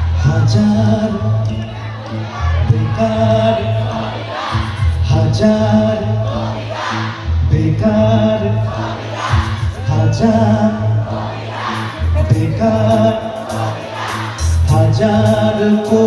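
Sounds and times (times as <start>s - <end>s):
man singing: 0.0s - 6.6s, 7.3s - 16.0s
bass guitar: 0.0s - 16.0s
drums: 9.3s - 10.2s, 11.7s - 16.0s.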